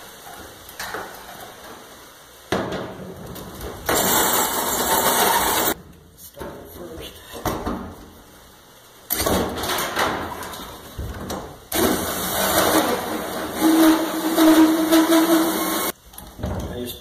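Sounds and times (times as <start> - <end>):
drill cutting through metal: 4.0 - 5.8, 12.2 - 15.9.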